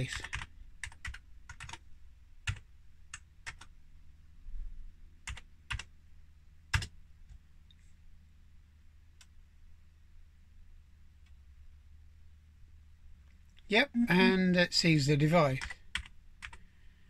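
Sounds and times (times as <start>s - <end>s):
keyboard keys clicking: 0.1s - 1.8s, 2.4s - 3.7s, 5.3s - 5.9s, 6.7s - 6.9s.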